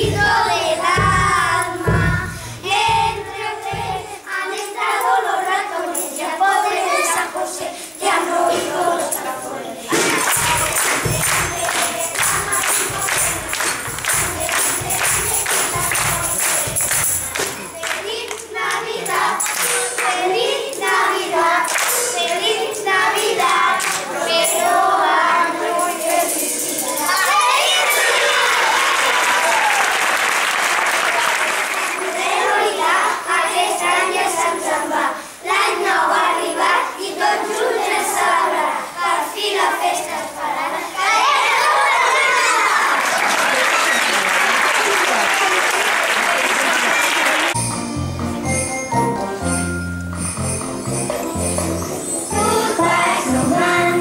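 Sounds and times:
children singing in unison: 0.0s - 43.1s, 51.9s - 54.0s
children clapping: 9.9s - 18.5s, 19.4s - 20.2s, 21.7s - 22.4s, 23.5s - 24.1s, 27.7s - 32.4s, 42.1s - 47.6s
tambourines shaking: 10.1s - 18.1s, 24.2s - 28.4s.

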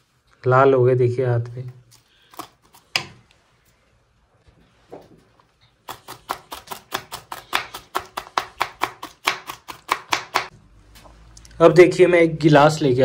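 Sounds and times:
knife chopping cabbage on board: 5.8s - 10.5s.

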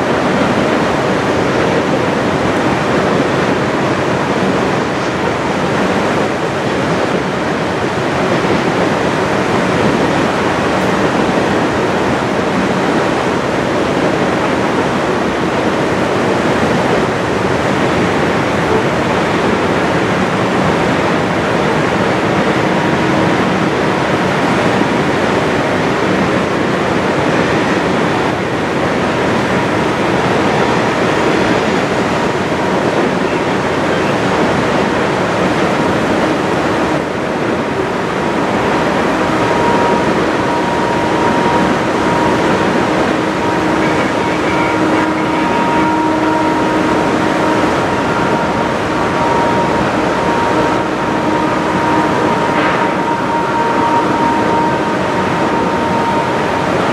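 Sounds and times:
fast river rushing: 0.0s - 56.9s
freight train rumbling past: 0.0s - 56.9s
thin high tone: 38.1s - 56.9s.

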